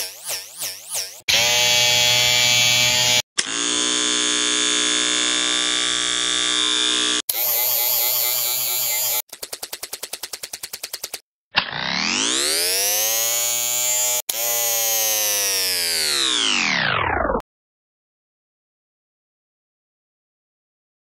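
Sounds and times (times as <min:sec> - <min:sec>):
electric shaver buzz: 0:01.3 - 0:09.3, 0:12.0 - 0:16.8.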